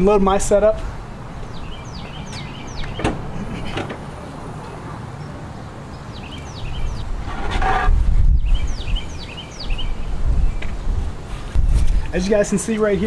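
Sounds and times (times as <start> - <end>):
bird chirping: 0.8 - 10.8
rustling scrape of equipment: 7.2 - 8.0.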